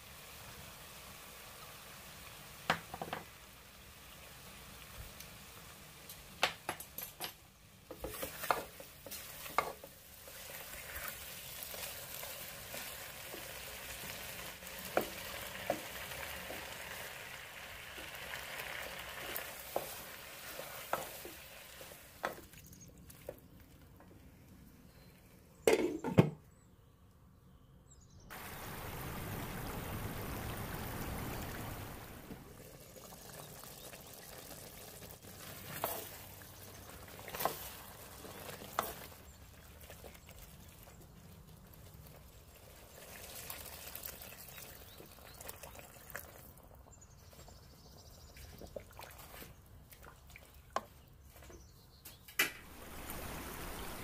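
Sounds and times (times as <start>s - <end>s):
low steady hiss: 0.0s - 15.1s, 27.9s - 32.8s, 52.3s - 54.0s
food sizzling in a frying pan: 8.0s - 22.1s.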